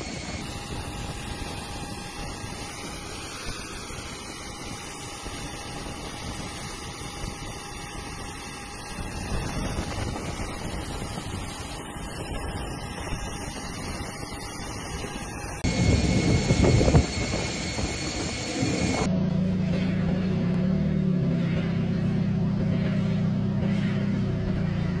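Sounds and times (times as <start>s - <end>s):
distant jets taxiing: 8.4s - 25.0s.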